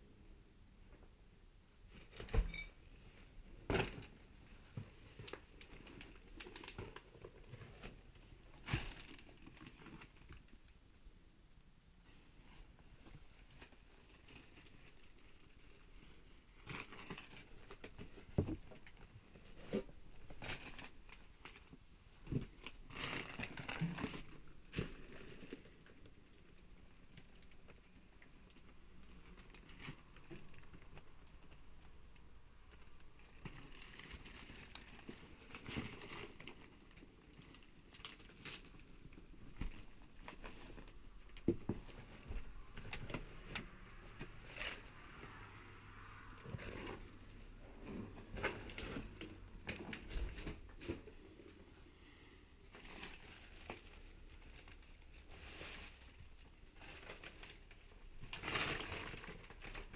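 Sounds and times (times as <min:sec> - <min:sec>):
paper rustling and crinkling: 0:52.7 - 0:59.9.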